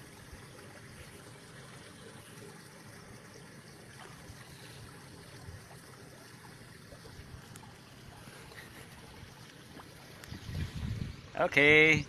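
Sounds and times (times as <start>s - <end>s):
water lapping: 0.0s - 11.8s.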